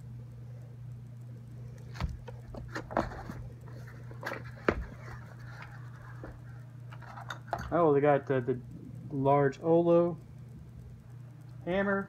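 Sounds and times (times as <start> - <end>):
cardboard knocks: 4.6 - 5.0.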